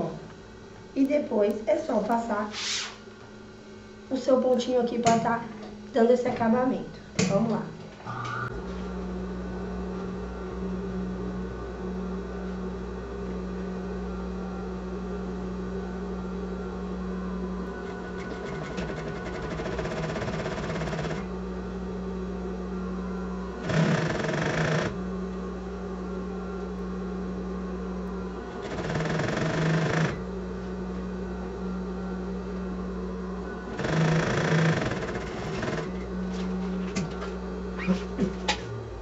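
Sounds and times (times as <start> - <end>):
sewing machine running: 17.8 - 21.3, 23.6 - 25.0, 28.5 - 30.2, 33.7 - 36.0.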